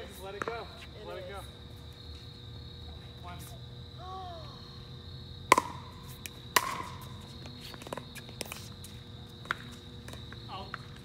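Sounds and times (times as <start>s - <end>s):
pickleball hitting paddles: 5.5s - 8.7s.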